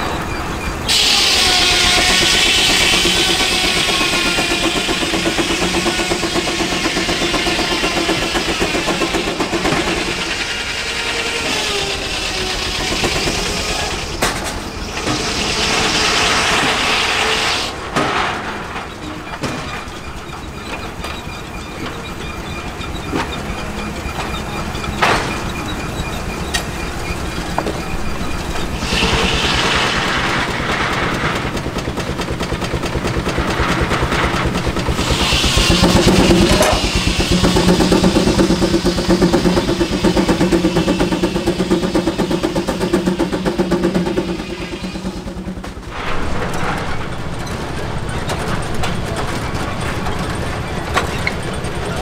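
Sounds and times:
steam engine rhythmic exhaust beat: 0.0 - 17.9, 18.8 - 46.1
circular saw running: 0.7 - 17.9, 20.0 - 45.9
saw blade cutting log: 33.5 - 41.2.

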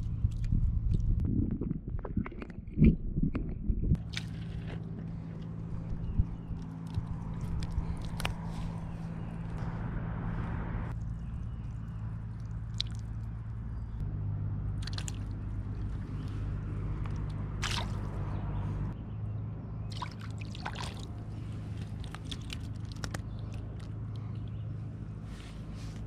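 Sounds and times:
steady low hum: 0.0 - 26.0
fish splashing and thrashing: 4.0 - 9.8, 10.9 - 13.8, 14.6 - 18.5, 19.9 - 24.5
water dripping and sloshing: 10.9 - 13.7, 14.8 - 18.4, 19.9 - 24.4.

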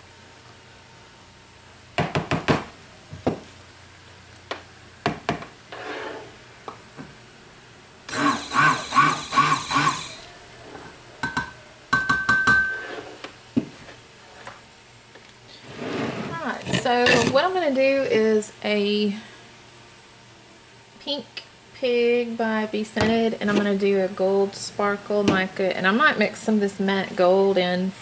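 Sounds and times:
squeaky scrapes: 5.7 - 6.4, 12.8 - 13.2.

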